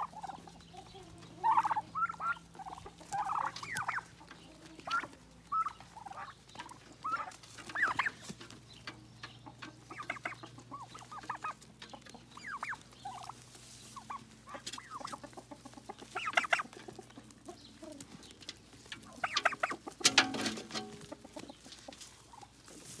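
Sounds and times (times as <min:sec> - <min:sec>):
turkeys chirping and clucking: 0:00.0 - 0:23.0.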